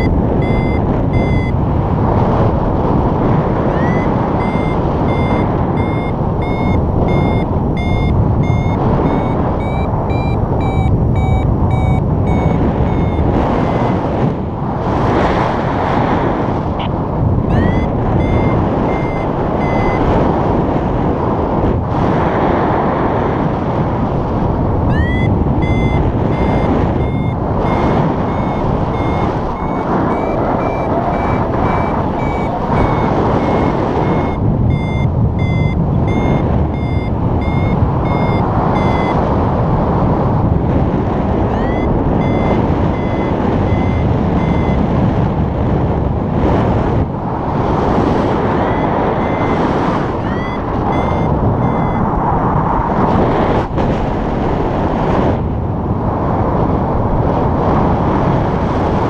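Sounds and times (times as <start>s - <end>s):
variometer high beeps: 0.0s - 1.6s, 3.5s - 14.1s, 16.8s - 20.3s, 24.9s - 39.4s, 41.4s - 45.1s, 47.8s - 52.2s
wind rushing past microphone: 0.0s - 59.0s.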